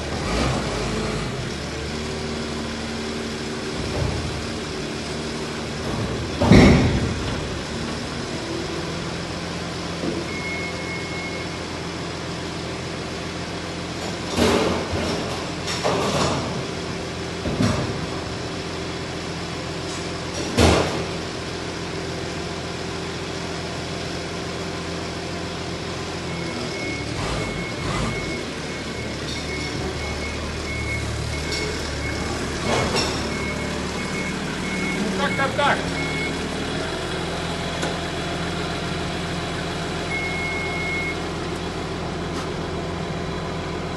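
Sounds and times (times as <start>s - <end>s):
forklift engine running: 0.0s - 43.9s
metal bangs and clanks: 5.9s - 7.6s
reversing beeper beeps: 10.3s - 11.6s, 33.3s - 36.4s, 40.1s - 41.2s.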